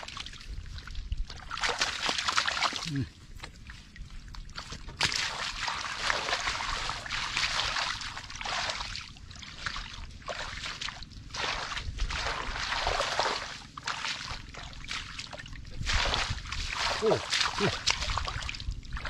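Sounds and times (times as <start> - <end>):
water splashing and sloshing: 0.0 - 19.0.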